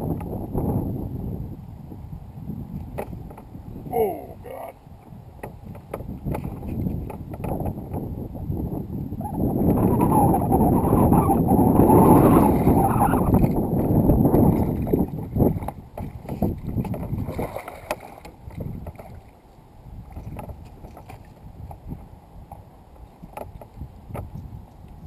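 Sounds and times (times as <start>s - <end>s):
water lapping: 10.0s - 21.7s
fish thrashing in water: 16.8s - 18.3s
small clicks and knocks: 23.2s - 24.9s.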